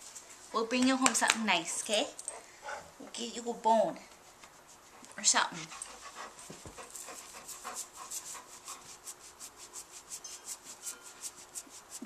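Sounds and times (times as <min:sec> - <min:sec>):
dog panting: 0:01.6 - 0:02.9, 0:04.5 - 0:11.6.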